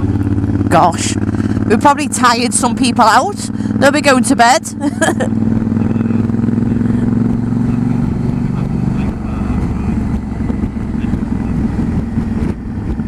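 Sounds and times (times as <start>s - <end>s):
motorcycle engine running: 0.0s - 13.0s
wind noise: 7.1s - 13.0s.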